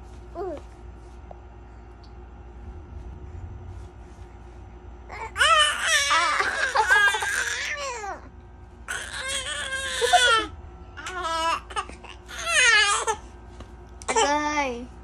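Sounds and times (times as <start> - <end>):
baby crying loudly: 5.1 - 8.1, 8.9 - 13.2.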